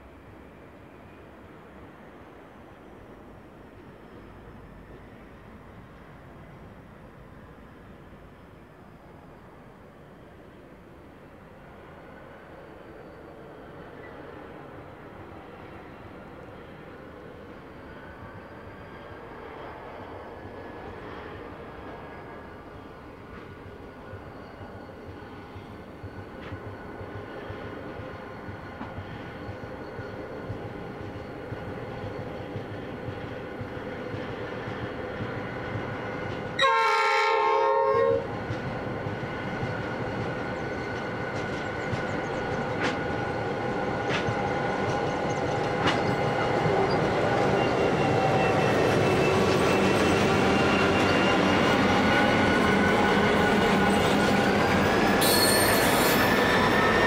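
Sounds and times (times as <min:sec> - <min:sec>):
train wheels squealing: 0:00.0 - 0:37.2, 0:37.8 - 0:57.0
diesel locomotive engines: 0:00.0 - 0:57.0
train horn: 0:36.6 - 0:38.3.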